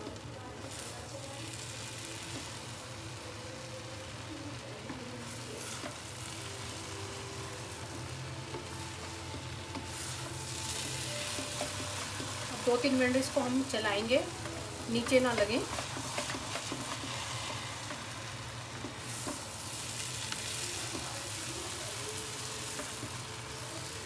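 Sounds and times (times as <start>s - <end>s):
noodles sizzling in a pan: 0.0s - 24.0s
spatula scraping a pan: 15.0s - 21.8s.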